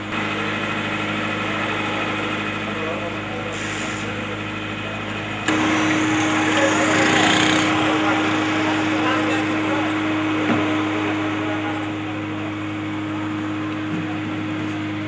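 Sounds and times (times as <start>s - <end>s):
jeep engine driving away: 0.0s - 10.0s.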